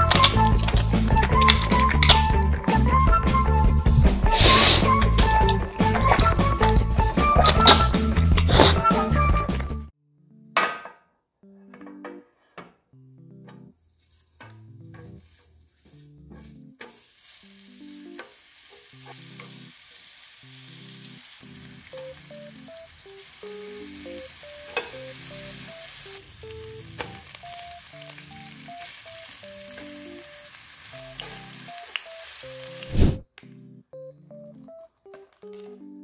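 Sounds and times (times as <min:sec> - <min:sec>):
soft background melody: 0:00.0 - 0:10.8, 0:11.4 - 0:19.8, 0:20.4 - 0:36.0
meat sizzling on griddle: 0:15.0 - 0:33.2
metal utensil clicking on pan: 0:18.2 - 0:19.6, 0:24.7 - 0:25.0.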